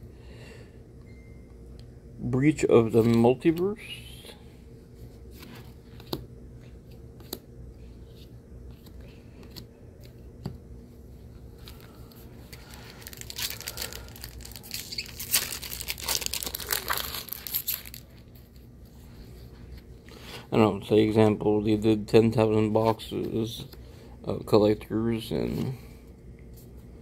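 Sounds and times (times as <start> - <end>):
foil wrapper tearing and crinkling: 12.6 - 18.2.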